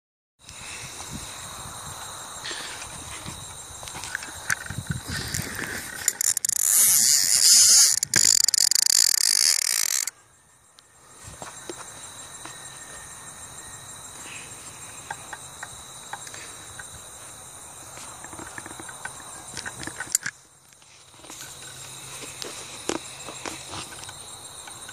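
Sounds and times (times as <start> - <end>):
crickets chirring: 0.4 - 24.9.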